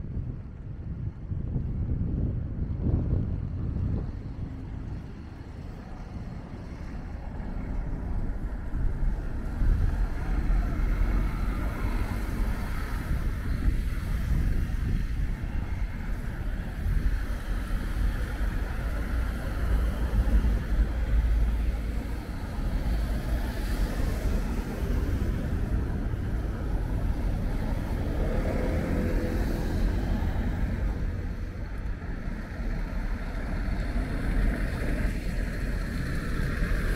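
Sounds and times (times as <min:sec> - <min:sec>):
low traffic rumble: 0:00.0 - 0:36.9
car tyres hissing on wet road: 0:09.4 - 0:36.9.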